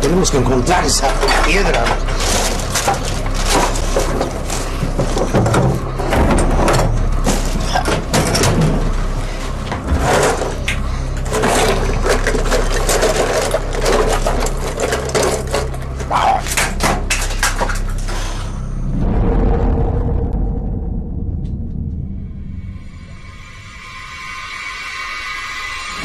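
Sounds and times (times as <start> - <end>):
steady low hum: 0.0 - 26.0
objects clattering in drawers: 0.8 - 18.1.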